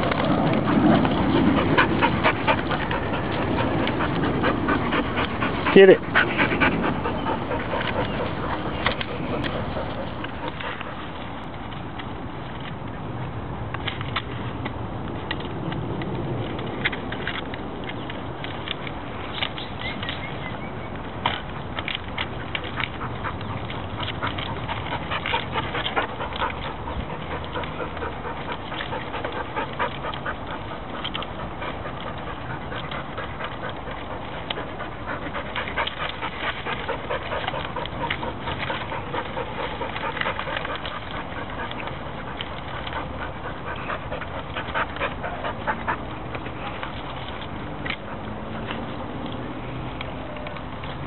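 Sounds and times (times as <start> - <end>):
dogs panting: 0.0 - 12.9, 15.3 - 51.0
rustling leaves and snapping twigs: 0.0 - 51.0.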